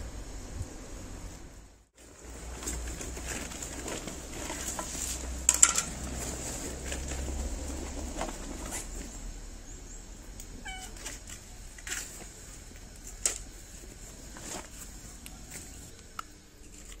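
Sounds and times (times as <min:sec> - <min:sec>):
cat meowing: 0:10.6 - 0:11.1.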